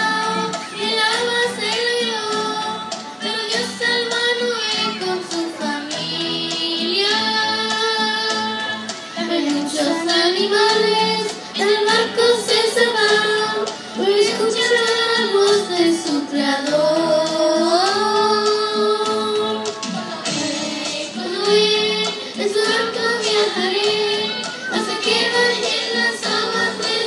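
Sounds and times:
girls singing into microphones: 0.0s - 27.0s.

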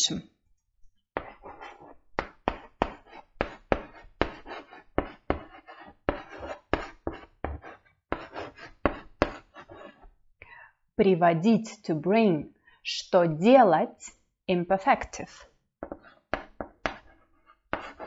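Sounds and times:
chalk writing on blackboard: 1.2s - 10.1s, 15.8s - 18.0s.

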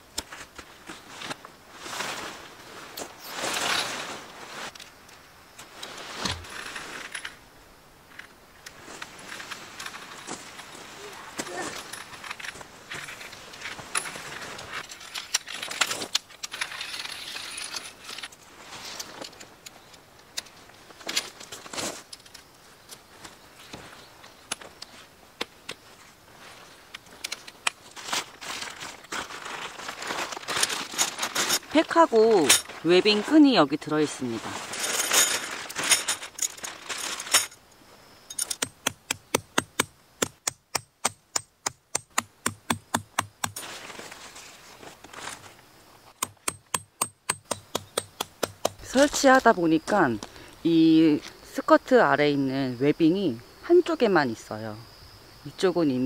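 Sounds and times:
tent fabric rustling: 0.0s - 7.4s, 8.7s - 25.2s, 27.8s - 37.7s, 43.2s - 46.2s
fabric sack rustling: 28.0s - 33.4s
tent pole knock: 38.6s - 43.6s, 46.2s - 48.9s.

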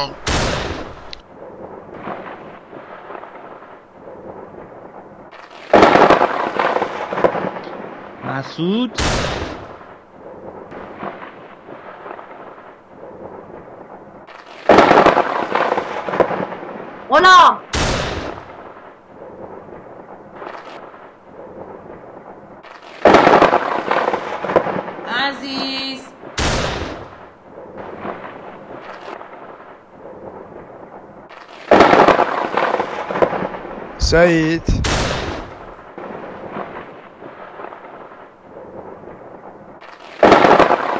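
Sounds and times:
loud crash with crackling tail: 0.0s - 1.1s, 5.3s - 13.4s, 14.2s - 17.0s, 17.7s - 19.0s, 22.6s - 25.1s, 26.2s - 29.8s, 31.3s - 38.2s, 39.8s - 40.9s
loud crash-like blast: 9.0s - 9.8s, 26.4s - 27.2s, 31.7s - 35.8s.

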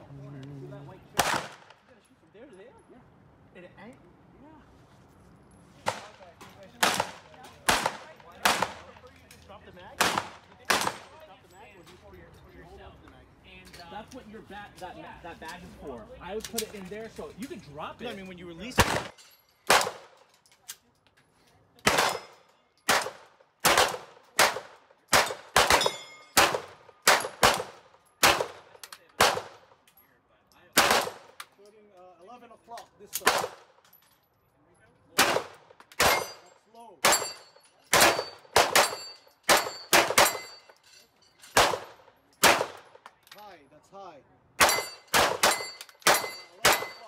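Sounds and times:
pistol shots: 1.2s - 1.8s, 6.8s - 9.0s, 10.0s - 11.2s, 18.8s - 20.2s, 21.8s - 29.7s, 30.8s - 31.4s, 33.2s - 33.7s, 35.2s - 36.4s, 37.0s - 40.6s, 41.6s - 43.0s, 44.6s - 47.0s.

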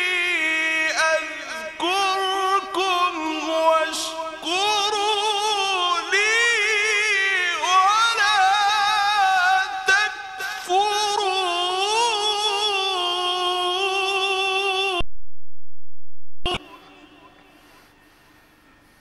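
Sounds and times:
man reciting melodically: 0.0s - 15.0s.

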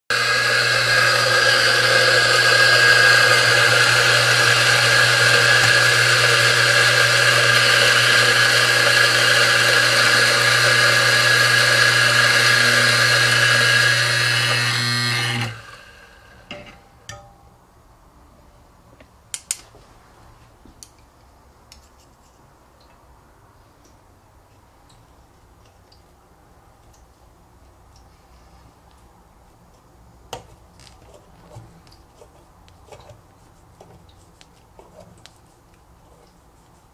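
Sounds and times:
coffee grinder running: 0.1s - 16.6s.

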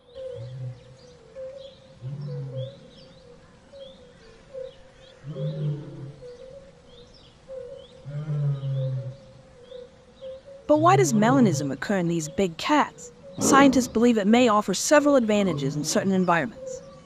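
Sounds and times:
birds chirping: 0.0s - 17.0s
big cat growling: 5.3s - 6.2s, 13.4s - 14.1s.

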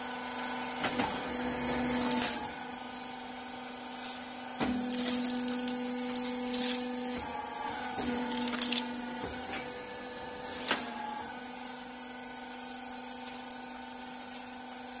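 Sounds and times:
machine humming: 0.0s - 15.0s.

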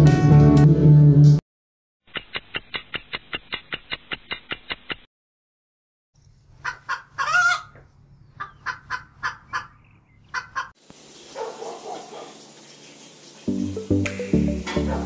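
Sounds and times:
chicken clucking: 6.6s - 10.7s.

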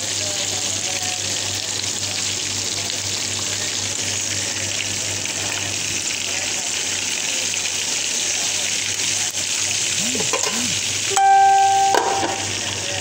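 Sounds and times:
fish sizzling in hot oil: 0.0s - 13.0s
low steady hum: 11.1s - 12.6s.

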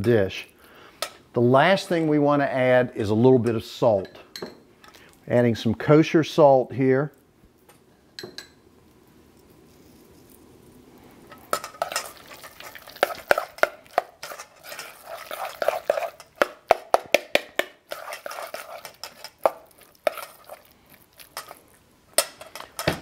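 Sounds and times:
spoon clinking against metal bowl: 11.3s - 16.8s, 17.9s - 20.5s
wet squelching mashing: 11.4s - 22.8s.

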